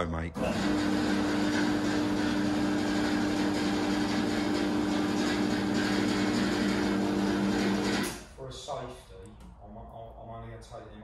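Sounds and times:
hydraulic pump motor humming: 0.4s - 8.3s.

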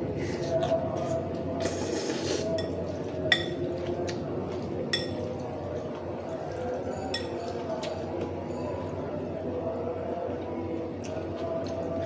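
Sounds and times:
person slurping noodles: 1.0s - 2.5s
cutlery clinking on ceramic bowl: 2.6s - 3.7s, 4.9s - 5.4s, 6.5s - 8.9s.

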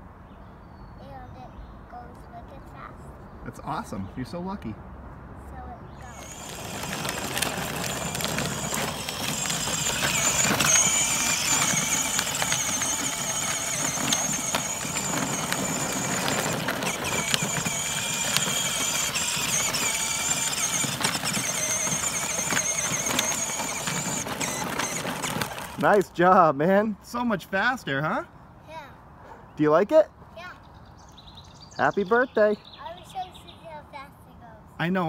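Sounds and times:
wheels rolling on pavement: 5.9s - 27.9s
high electric motor whine: 6.1s - 25.9s.

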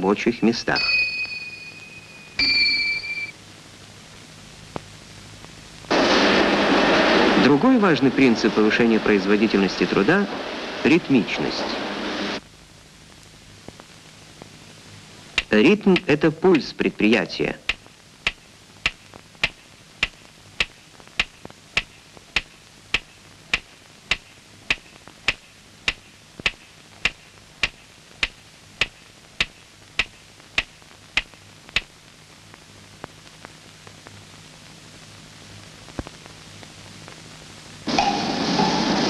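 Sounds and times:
faint hiss: 0.0s - 2.5s, 3.2s - 39.0s
steady ticking: 17.7s - 31.9s.

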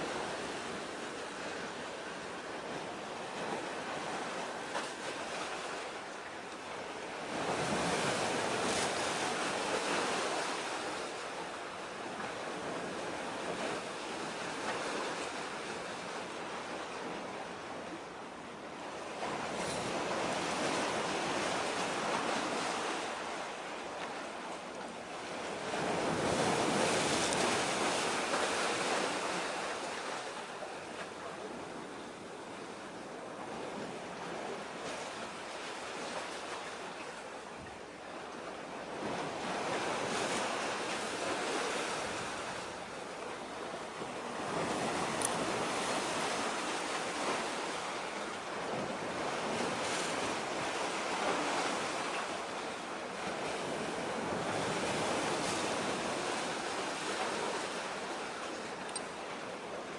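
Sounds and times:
sea waves breaking: 0.0s - 59.9s.

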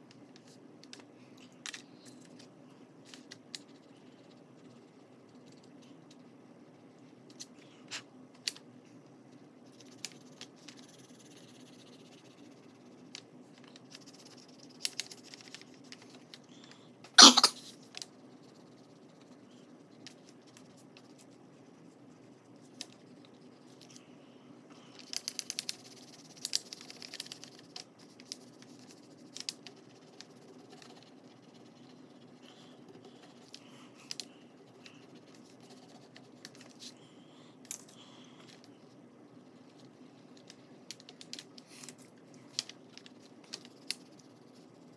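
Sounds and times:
low steady hum: 0.0s - 44.9s.

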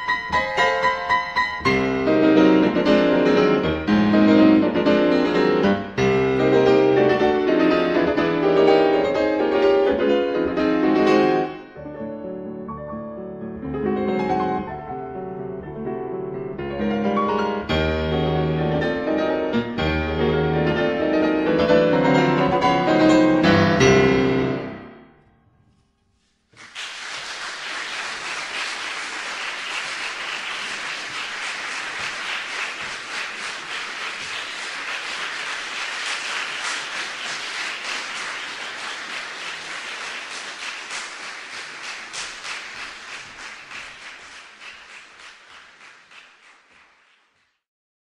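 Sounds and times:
audience applauding: 26.6s - 47.6s.

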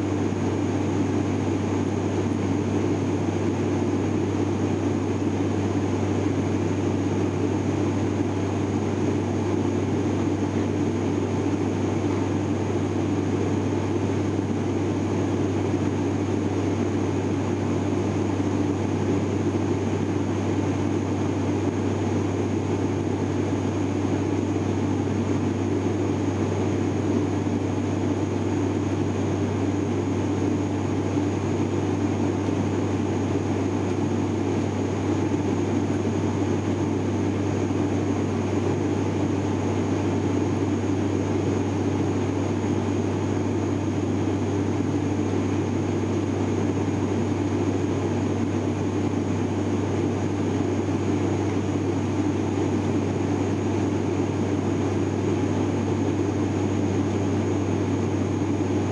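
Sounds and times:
turboprop cabin drone: 0.0s - 58.9s.

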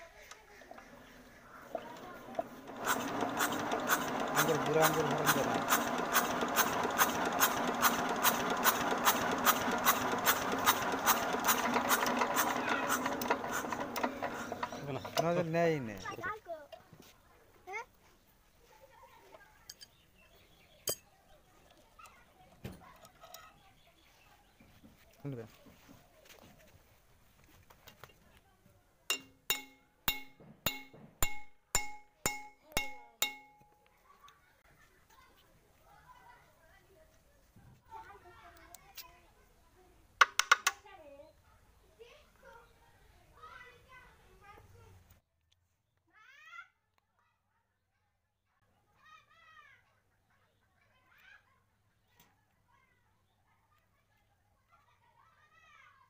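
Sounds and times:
engine mechanical whirr: 1.6s - 15.5s.

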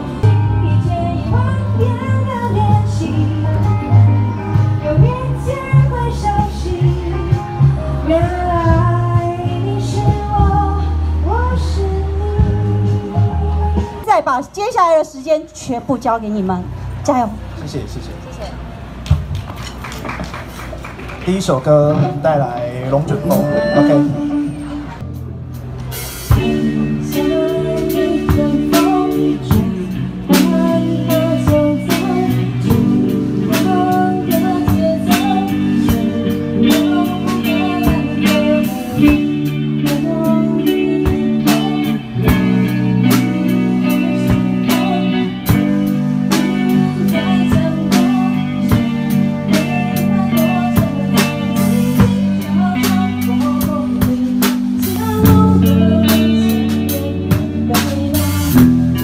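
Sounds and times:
electric guitar: 0.0s - 14.1s, 21.8s - 59.0s
live band playing: 0.0s - 59.0s
drum kit beat: 21.9s - 59.0s.

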